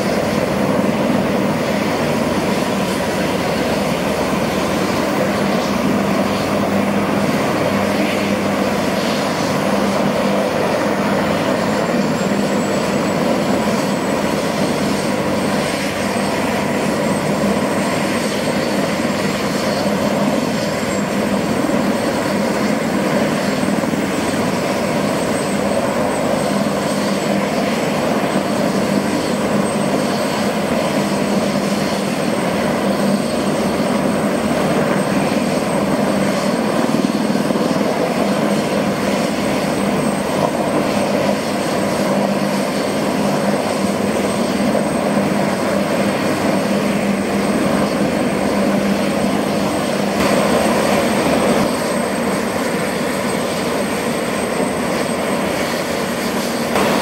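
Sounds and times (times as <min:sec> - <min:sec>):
helicopter engine and rotor roar: 0:00.0 - 0:57.0
helicopter turbine whine: 0:00.0 - 0:57.0.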